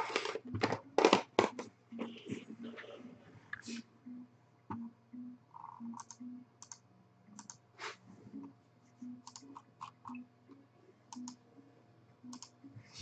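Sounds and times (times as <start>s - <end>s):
keyboard and mouse clicks: 5.6s - 7.6s, 9.2s - 10.2s, 11.1s - 11.4s, 12.3s - 12.6s.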